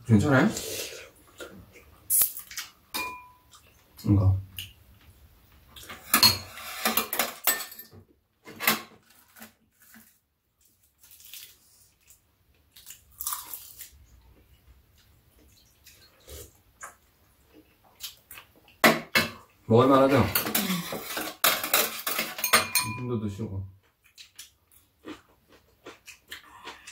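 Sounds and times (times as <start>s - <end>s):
utensils clinking on bowls: 2.2s - 3.6s, 6.0s - 7.9s, 20.2s - 23.1s.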